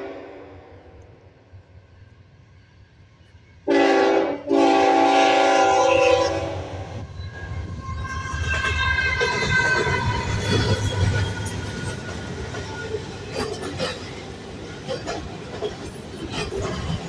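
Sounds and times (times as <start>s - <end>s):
locomotive air horn: 0.0s - 0.8s, 3.7s - 6.9s
train engine and wheels rumbling: 0.0s - 17.0s.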